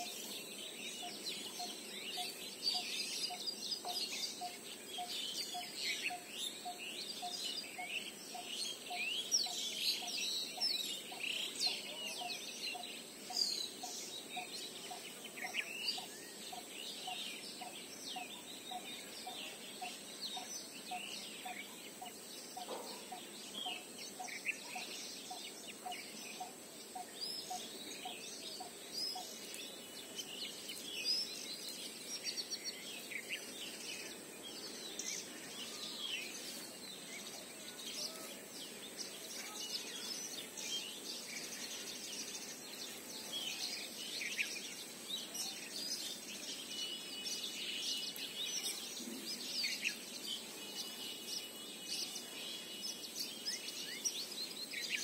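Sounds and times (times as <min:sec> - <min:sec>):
birds chirping and calling: 0:00.0 - 0:55.0
outdoor background hiss: 0:00.0 - 0:55.0.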